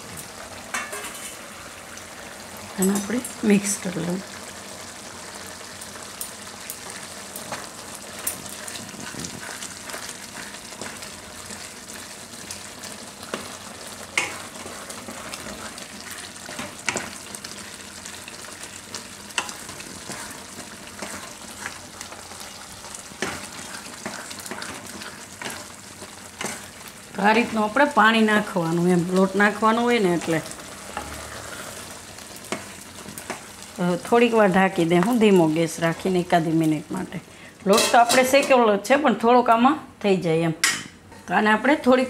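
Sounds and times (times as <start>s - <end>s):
gravy sizzling: 0.0s - 39.3s
spatula scraping pan: 13.2s - 18.6s, 19.3s - 27.8s, 30.2s - 33.6s.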